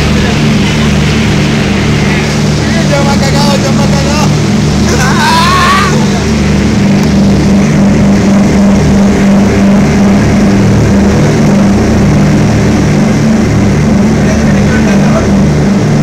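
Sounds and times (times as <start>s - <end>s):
propeller plane engines droning: 0.0s - 16.0s
man shouting excitedly: 5.0s - 6.1s.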